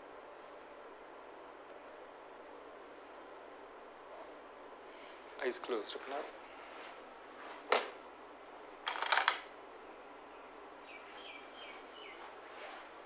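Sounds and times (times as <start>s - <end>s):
small bird chirping: 10.4s - 12.2s.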